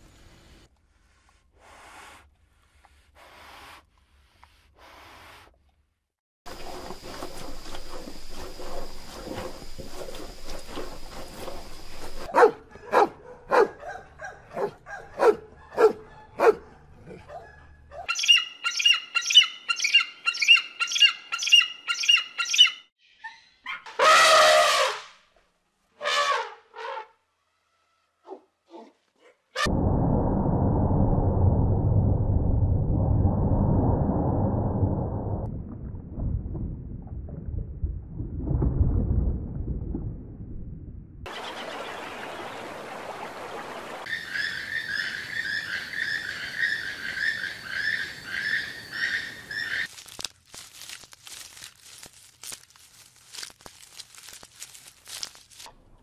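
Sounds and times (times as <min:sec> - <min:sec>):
dog barking: 0:12.3 - 0:18.2, 0:28.2 - 0:29.4.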